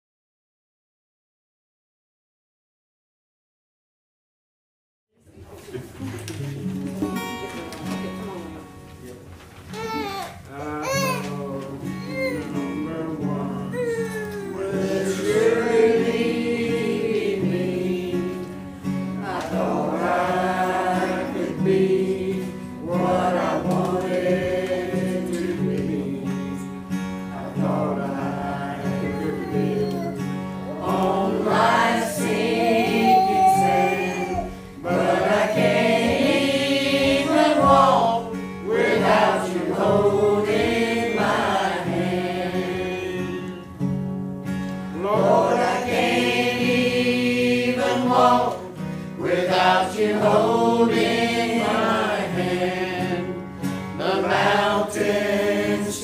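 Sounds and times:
acoustic guitar: 5.3s - 56.0s
choir singing: 14.4s - 43.7s, 44.9s - 56.0s.

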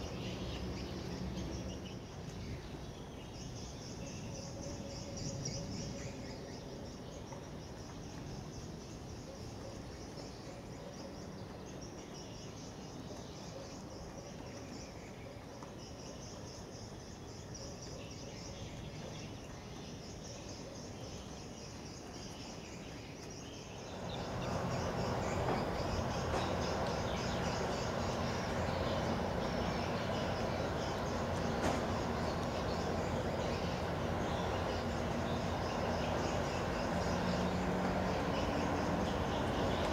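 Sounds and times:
insects chirping: 0.0s - 39.9s
low outdoor rumble: 23.8s - 39.9s.

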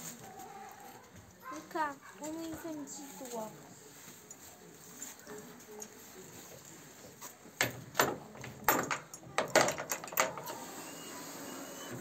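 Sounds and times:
metal bit clinking in plastic bucket: 7.6s - 10.4s.

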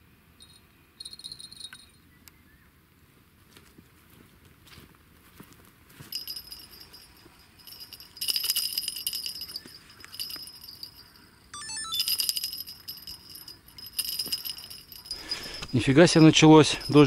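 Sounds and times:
small bells jingling: 0.4s - 2.0s, 6.0s - 17.0s.

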